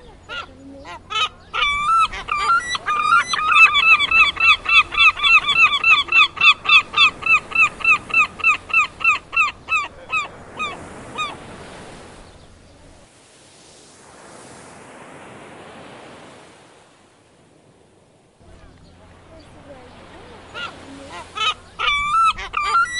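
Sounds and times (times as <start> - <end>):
gull calling: 0.0 - 12.1, 18.4 - 22.9.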